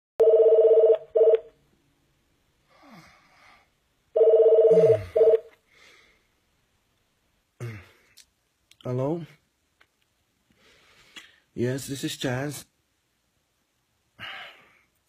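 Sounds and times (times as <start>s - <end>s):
mobile phone ringing: 0.2s - 1.6s, 4.2s - 5.6s
man groaning sleepily: 4.7s - 5.3s, 7.6s - 8.1s.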